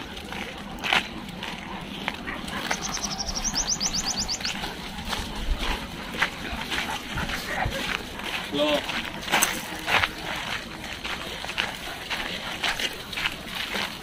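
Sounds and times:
outdoor background noise: 0:00.0 - 0:14.0
small bird trilling: 0:02.7 - 0:04.6.

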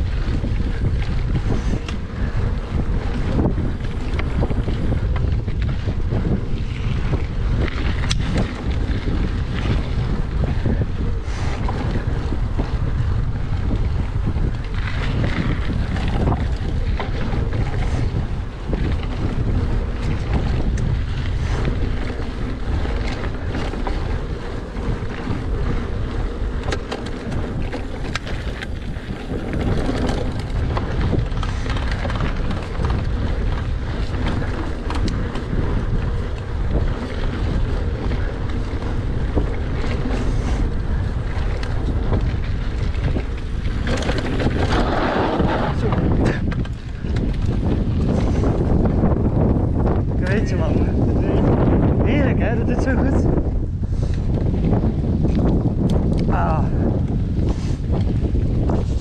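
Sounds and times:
bike clicks and rattles: 0:00.0 - 0:59.0
wind buffeting microphone: 0:00.0 - 0:59.0
tyres rolling over dirt: 0:13.8 - 0:52.0.

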